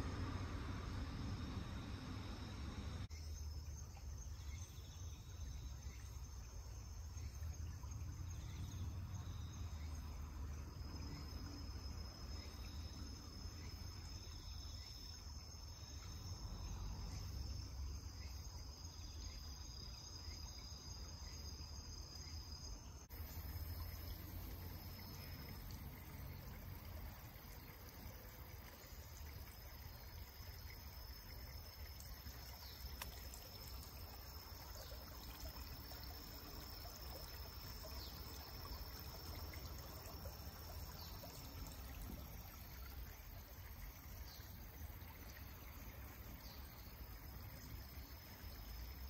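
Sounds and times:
insects trilling: 0.0s - 49.0s.

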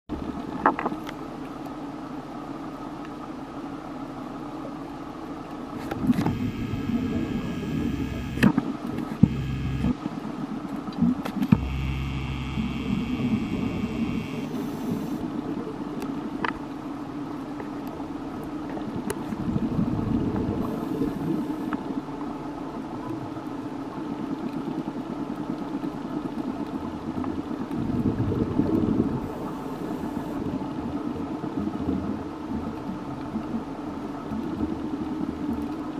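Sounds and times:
underwater low drone: 1.4s - 16.5s, 17.5s - 23.9s, 27.6s - 35.9s
sharp clicks: 5.9s - 10.0s, 11.3s - 15.2s.

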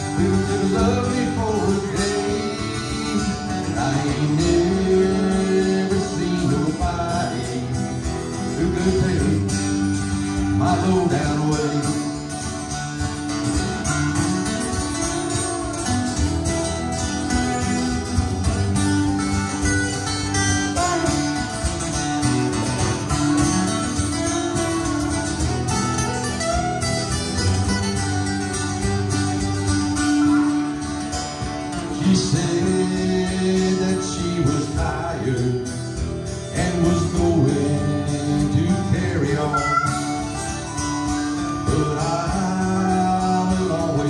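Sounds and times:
acoustic guitars strumming: 0.0s - 44.0s
harmonica: 39.3s - 42.0s.

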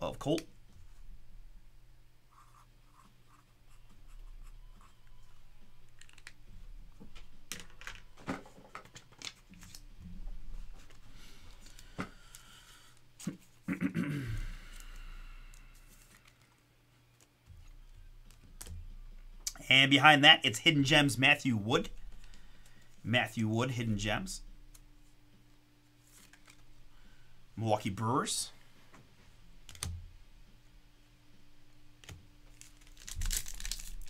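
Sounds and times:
cards shuffled and set down: 7.0s - 9.9s, 26.1s - 26.6s.

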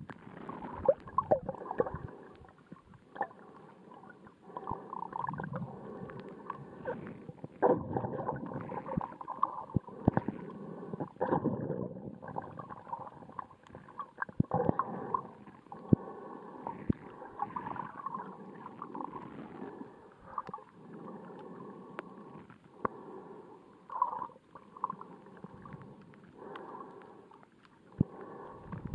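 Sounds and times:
muffled underwater water movement: 0.0s - 28.9s
sharp underwater clicks: 23.9s - 28.9s.

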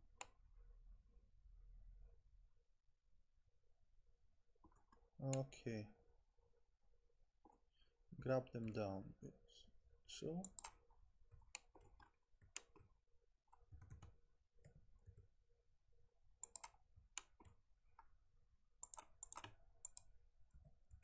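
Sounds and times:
mouse and keyboard clicking: 10.4s - 12.8s, 16.4s - 17.6s, 18.8s - 21.0s.

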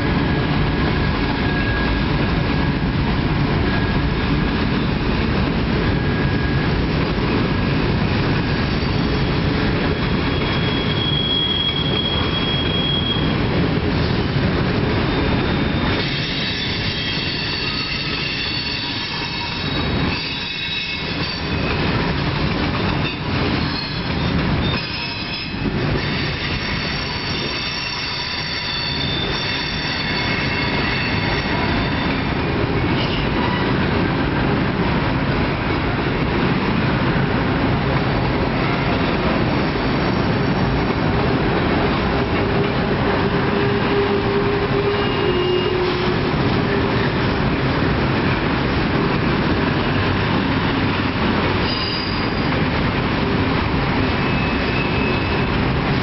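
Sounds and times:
train wheels rumbling on rails: 0.0s - 56.0s
high thin wheel squeals: 10.0s - 13.4s, 15.1s - 21.6s, 23.1s - 32.2s, 43.5s - 46.1s, 51.6s - 52.6s, 54.2s - 55.6s.

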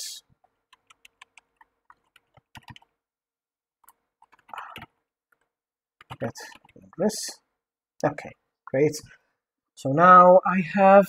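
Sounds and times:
keyboard typing: 0.4s - 3.0s, 3.8s - 7.0s.

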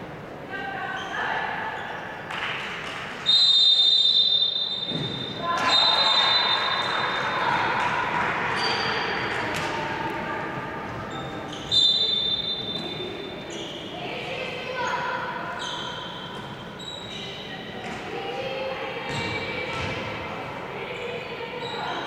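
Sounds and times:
referee's whistle blasts: 3.2s - 7.2s, 11.5s - 13.0s
ball bouncing on court: 4.9s - 5.9s, 7.4s - 10.0s, 17.8s - 18.2s, 19.0s - 20.3s.

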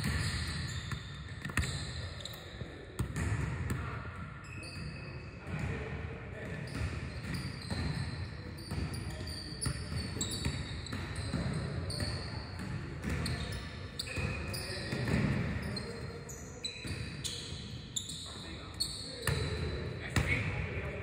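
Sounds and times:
basketballs bouncing on wooden floor: 0.0s - 1.8s, 3.0s - 3.9s, 8.7s - 13.5s
sneakers squeaking: 0.0s - 5.7s, 6.5s - 20.6s.

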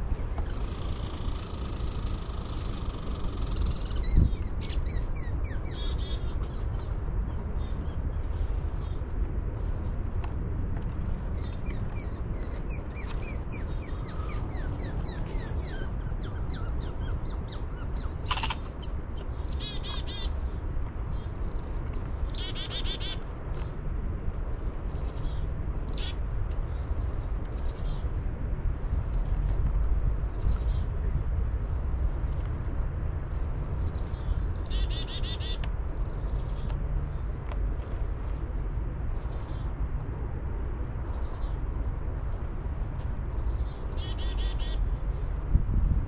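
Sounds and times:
songbirds chirping: 0.0s - 28.6s.

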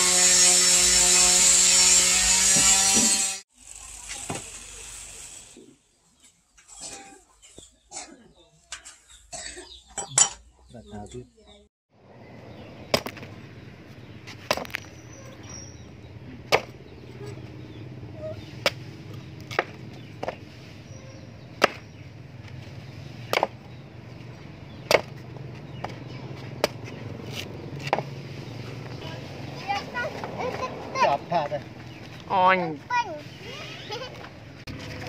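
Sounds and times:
machete chopping coconut husk: 12.9s - 13.3s, 14.3s - 15.1s, 16.4s - 16.8s, 18.4s - 20.4s, 21.5s - 22.0s, 23.2s - 23.6s, 24.8s - 25.2s, 25.8s - 28.2s.

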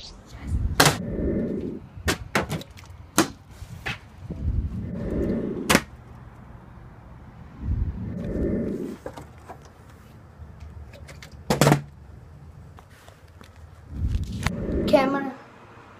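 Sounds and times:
low rumbling: 0.3s - 2.4s, 4.1s - 9.1s, 13.8s - 15.7s.

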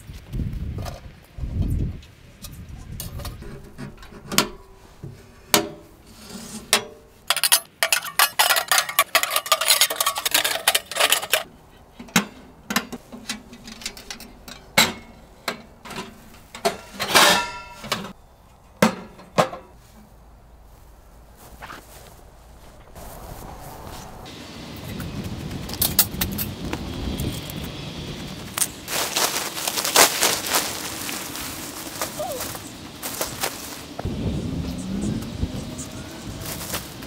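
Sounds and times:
metal ringing: 16.6s - 18.1s.

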